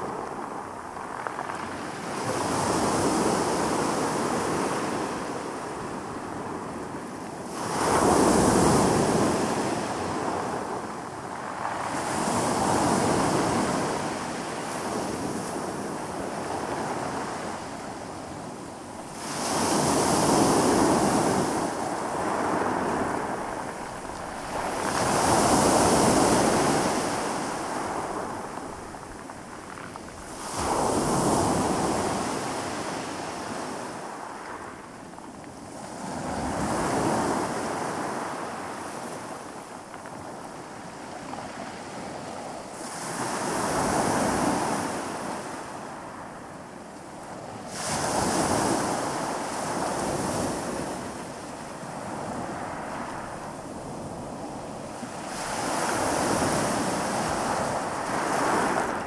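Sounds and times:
waves washing up pebble beach: 19.0 - 34.9, 35.8 - 46.3, 47.7 - 59.0.

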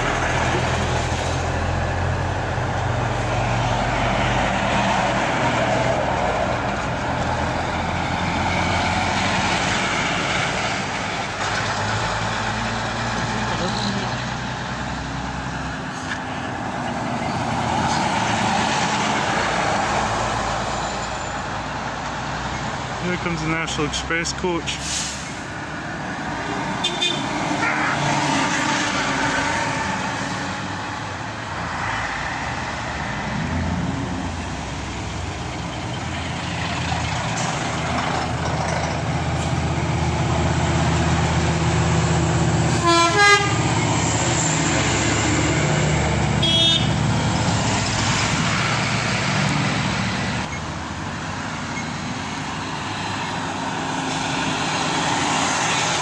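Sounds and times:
lorries driving past: 0.0 - 56.0
horn toots: 26.8 - 28.8, 42.7 - 43.8, 46.4 - 47.0.

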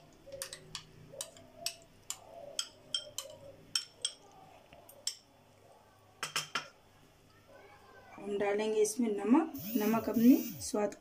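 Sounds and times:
metal spoon clinking glass bowl: 0.4 - 4.3, 6.2 - 6.7.

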